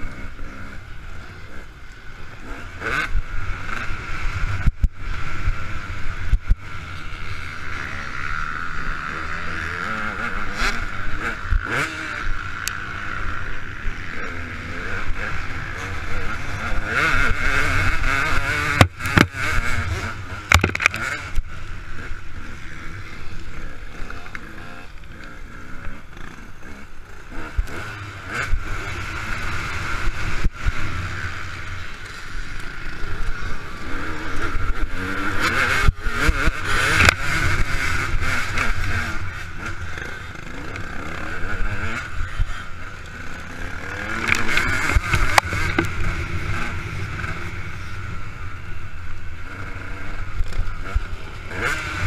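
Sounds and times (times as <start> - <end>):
two-stroke motorcycle engine revving: 0.0 - 52.0
sharp knocks from bike: 20.5 - 21.1.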